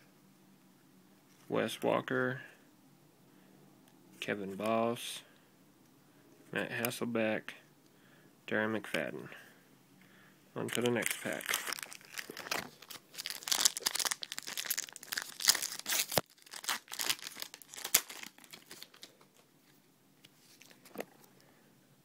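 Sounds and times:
foil wrapper tearing and crinkling: 10.7 - 19.2.

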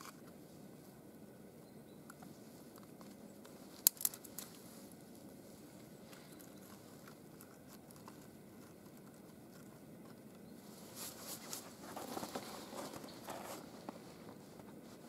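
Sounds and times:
dry twigs snapping: 2.1 - 4.6.

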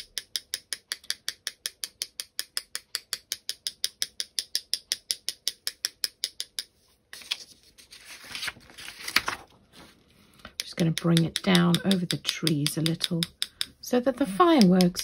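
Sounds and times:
paintbrush handles tapping: 10.4 - 15.0.

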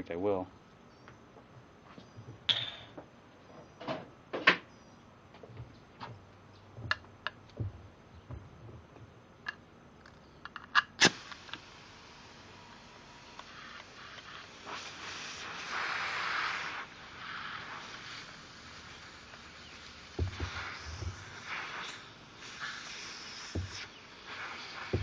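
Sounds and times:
faint steady air hiss: 0.0 - 25.0.

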